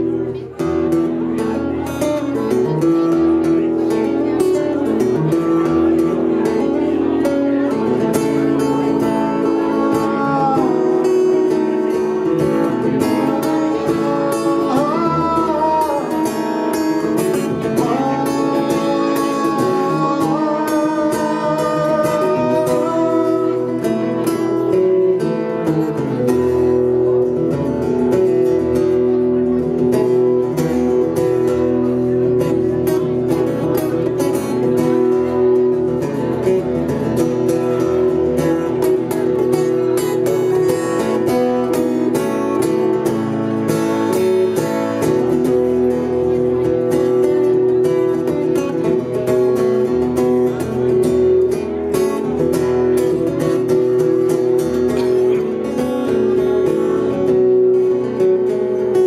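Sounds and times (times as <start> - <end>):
strummed acoustic guitar: 0.0 - 59.0
man singing: 7.2 - 25.4.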